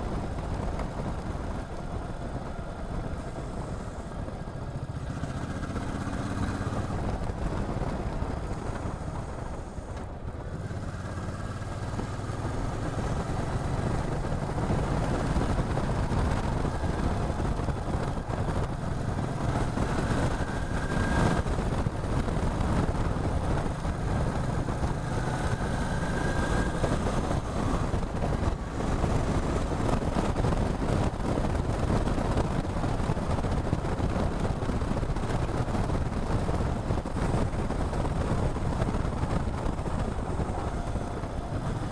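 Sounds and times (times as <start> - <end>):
motorcycle engine: 0.0 - 41.9
wind and road noise: 0.0 - 41.9.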